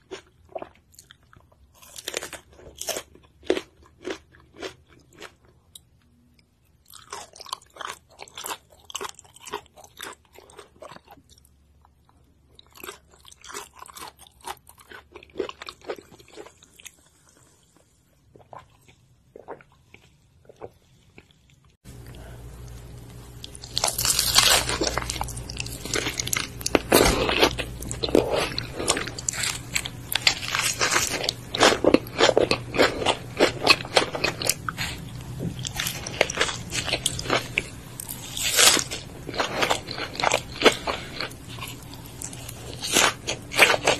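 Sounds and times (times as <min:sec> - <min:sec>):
crunchy biting and chewing: 0:00.0 - 0:05.5, 0:06.8 - 0:11.5, 0:12.5 - 0:17.5, 0:22.0 - 0:43.9
wet chewing: 0:21.9 - 0:43.9.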